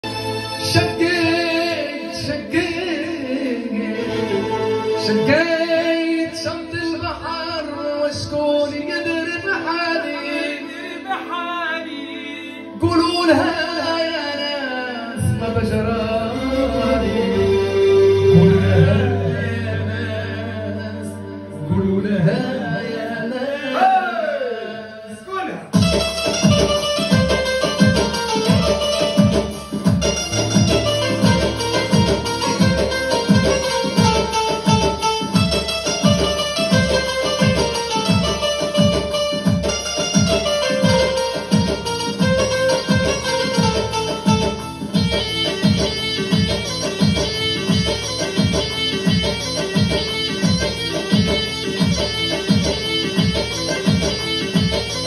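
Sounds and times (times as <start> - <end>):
man singing through microphone: 0.6 - 25.8
electronic keyboard: 25.7 - 55.0
low steady beat: 25.7 - 55.0.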